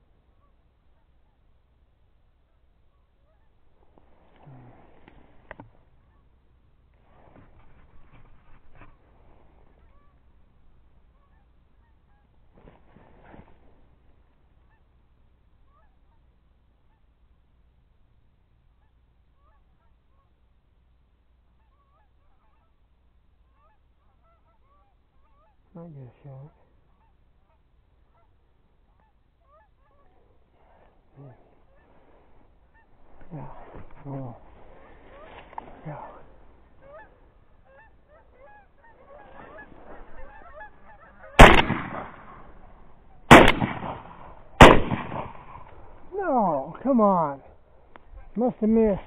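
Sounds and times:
geese honking faintly: 0:00.0 - 0:49.0
shotgun blasts: 0:41.3 - 0:46.1.

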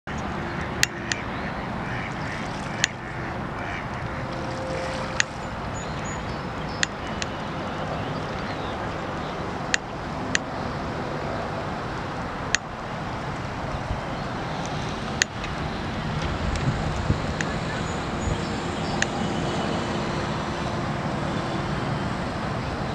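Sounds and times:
wind and water noise: 0:00.1 - 0:22.9
faint waterfowl calls: 0:00.5 - 0:05.4.

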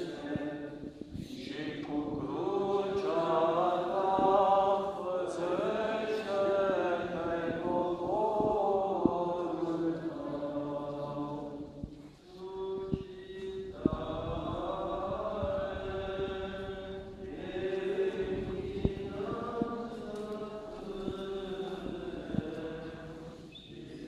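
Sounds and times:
liturgical chant: 0:00.0 - 0:24.0.

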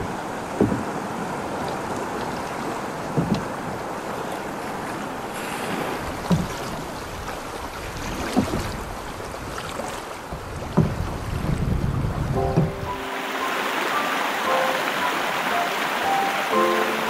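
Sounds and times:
river water rushing: 0:00.0 - 0:17.0
wind on microphone: 0:05.4 - 0:13.1
low thump: 0:10.8 - 0:11.0, 0:12.4 - 0:12.9.

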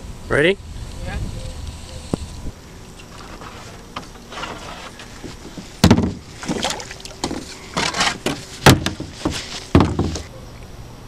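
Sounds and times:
paddle knocking on kayak hull: 0:05.2 - 0:10.3
water splashing: 0:05.6 - 0:10.3.

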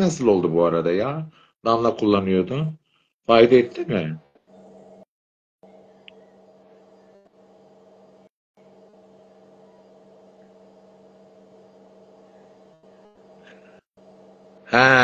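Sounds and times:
faint steady hum: 0:04.5 - 0:15.0.

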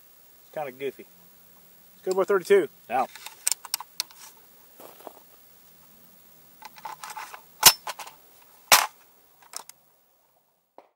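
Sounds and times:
rifle action clicks and rattles: 0:06.6 - 0:09.8.

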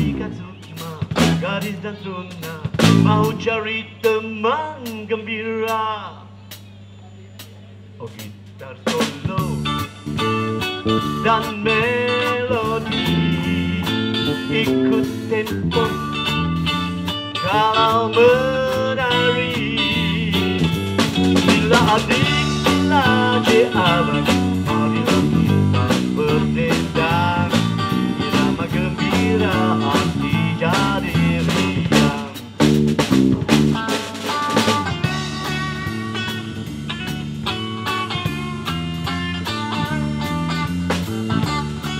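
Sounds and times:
steady drum beat: 0:00.0 - 0:03.5, 0:08.2 - 0:41.9
electric bass: 0:00.0 - 0:04.2, 0:08.1 - 0:41.9
lead electric guitar soloing: 0:09.6 - 0:41.9.

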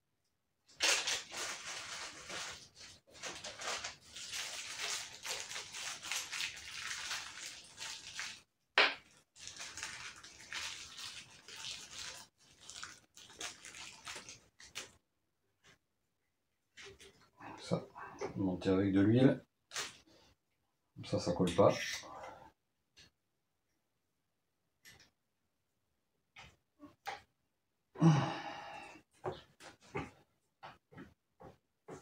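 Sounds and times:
plastic crinkling: 0:00.7 - 0:15.0.

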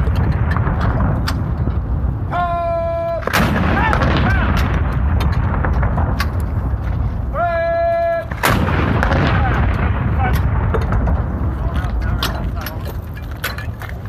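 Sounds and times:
cannon firing: 0:00.0 - 0:13.6
person shouting firing command: 0:02.3 - 0:04.6, 0:07.3 - 0:08.4, 0:09.0 - 0:10.5.

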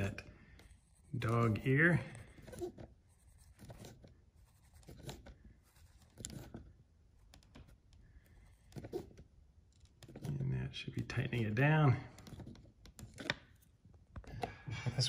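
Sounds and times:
screwdriver scratchy clicks and creaks: 0:08.6 - 0:11.2.

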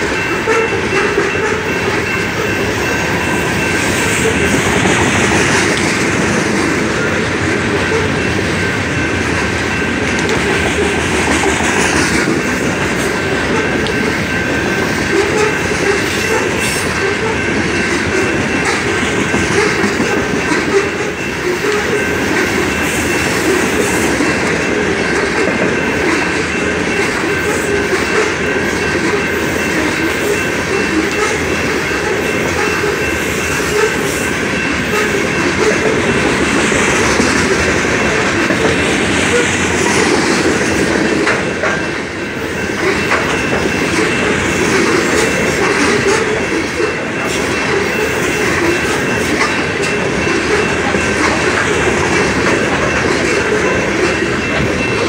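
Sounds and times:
freight train rumbling by: 0:00.0 - 0:55.0
wheels clacking over rail joints: 0:00.0 - 0:55.0.

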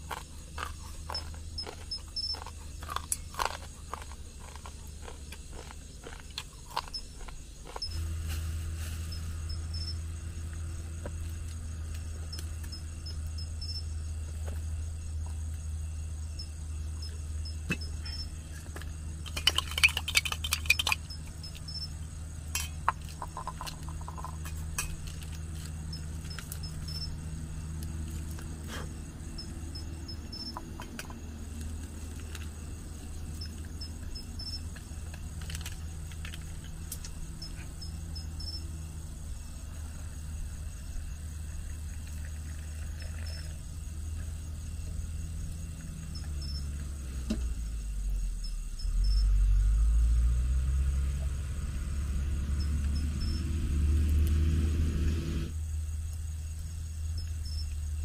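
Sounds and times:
crickets chirping: 0:00.0 - 0:58.0
clicks and rattles: 0:19.2 - 0:21.6.

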